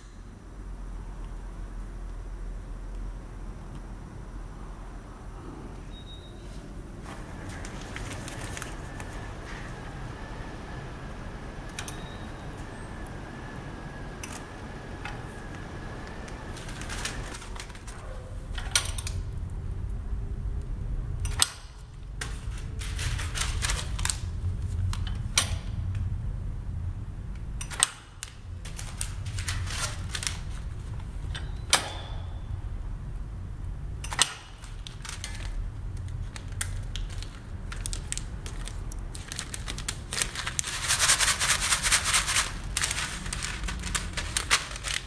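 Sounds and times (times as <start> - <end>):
low steady hum: 0.0 - 45.0
plastic and foil bags crinkling: 7.2 - 9.8, 15.3 - 18.2, 22.2 - 24.8, 28.2 - 31.3, 34.4 - 45.0.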